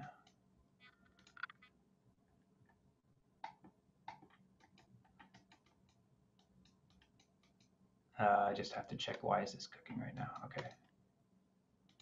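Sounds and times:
computer mouse clicks: 0:00.2 - 0:01.7, 0:03.4 - 0:07.8, 0:09.0 - 0:09.3, 0:09.9 - 0:11.0.

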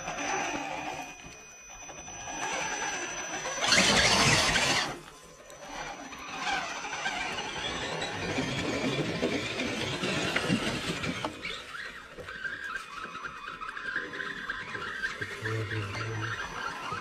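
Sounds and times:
rc truck motor whining: 0:00.0 - 0:17.0
wheelspin throwing dirt: 0:01.9 - 0:05.1, 0:05.7 - 0:15.4.

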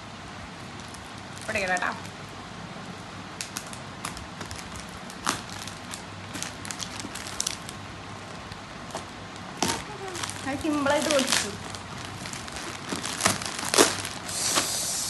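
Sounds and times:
plastic bag crinkling: 0:03.4 - 0:14.3.

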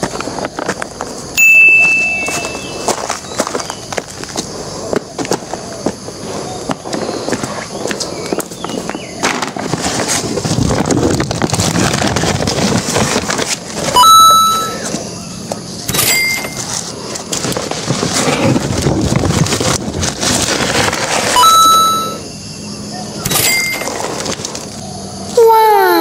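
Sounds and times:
short ringing sound: 0:01.4 - 0:02.8, 0:15.9 - 0:16.6, 0:21.4 - 0:22.3, 0:23.3 - 0:24.0
loud bang with ringing tone: 0:01.4 - 0:03.0, 0:14.0 - 0:14.9, 0:15.9 - 0:16.6, 0:23.2 - 0:24.0
plastic sack rustling and crackling: 0:05.3 - 0:14.0, 0:16.5 - 0:21.5.

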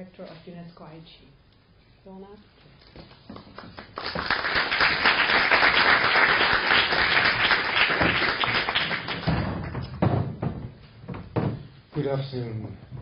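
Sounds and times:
audience applauding: 0:03.5 - 0:09.8.

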